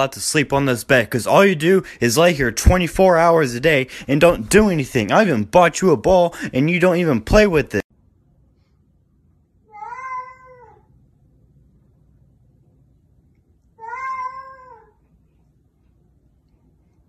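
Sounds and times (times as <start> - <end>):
cat meowing: 9.7 - 10.9, 13.8 - 15.0.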